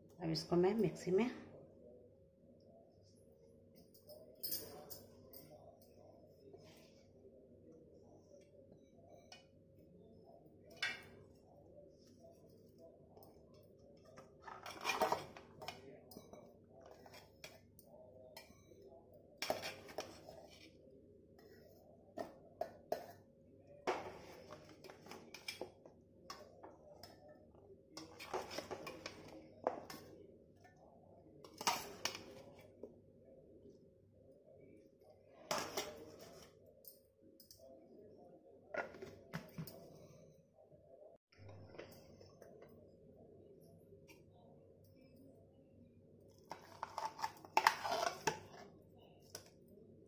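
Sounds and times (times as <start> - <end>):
steel kitchenware clinking: 14.4 - 17.5.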